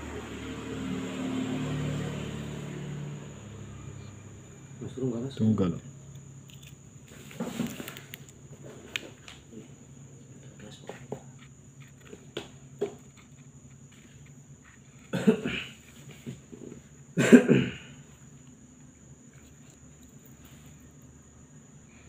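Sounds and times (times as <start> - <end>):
person coughing: 15.1 - 15.8, 17.2 - 18.0.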